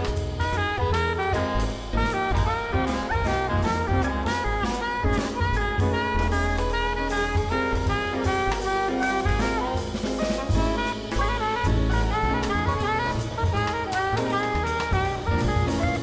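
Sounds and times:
bass line: 0:00.0 - 0:16.0
drum kit with cymbals: 0:00.0 - 0:16.0
horn soloing: 0:00.0 - 0:16.0.

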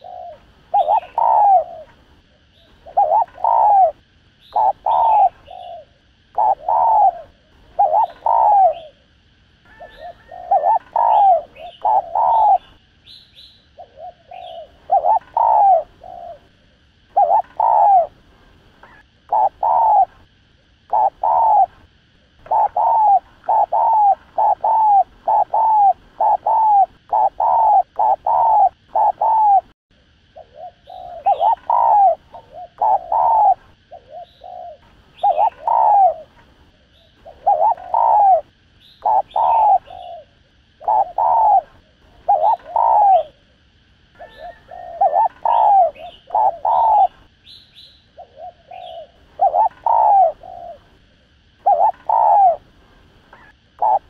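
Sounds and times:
dove cooing: 0:00.0 - 0:54.0
faint higher chirps: 0:30.4 - 0:43.5, 0:44.2 - 0:52.6, 0:53.2 - 0:54.0.

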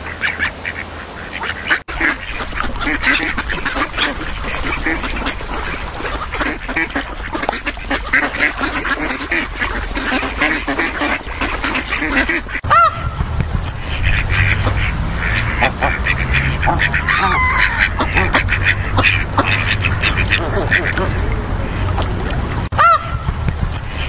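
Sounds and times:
ducks quacking: 0:00.0 - 0:24.0
low rumble: 0:12.6 - 0:24.0.

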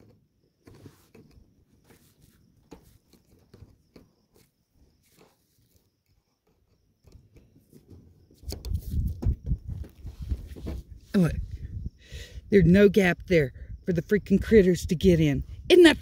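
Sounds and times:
rustling and thumps: 0:00.0 - 0:11.8.

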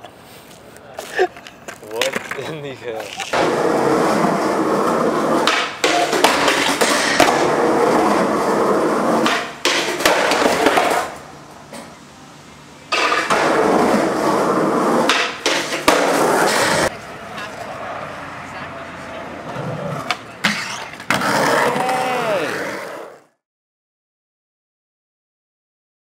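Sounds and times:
skateboard wheels rolling on concrete: 0:00.0 - 0:23.4
skateboard clacks: 0:01.0 - 0:11.9, 0:12.9 - 0:17.7, 0:19.4 - 0:23.2.

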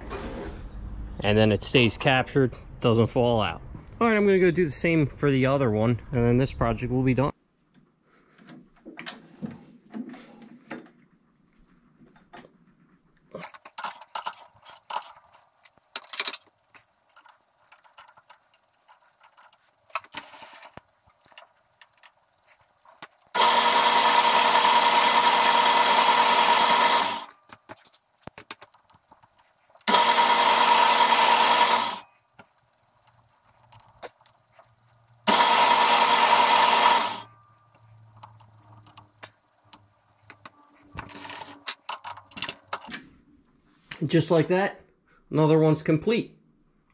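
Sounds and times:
lathe motor humming faintly: 0:22.6 - 0:27.3, 0:29.8 - 0:32.1, 0:35.2 - 0:37.8
metal lathe cutting: 0:23.4 - 0:27.3, 0:29.9 - 0:32.0, 0:35.3 - 0:37.3.

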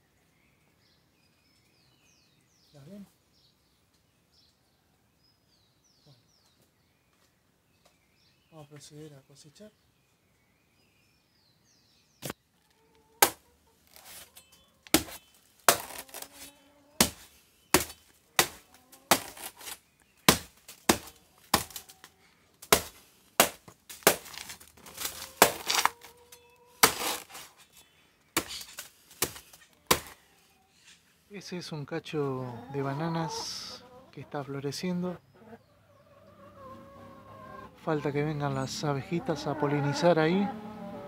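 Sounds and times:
blade chopping plant stem: 0:13.2 - 0:14.3, 0:14.9 - 0:21.9, 0:22.6 - 0:26.1, 0:26.8 - 0:27.5, 0:28.4 - 0:30.2.

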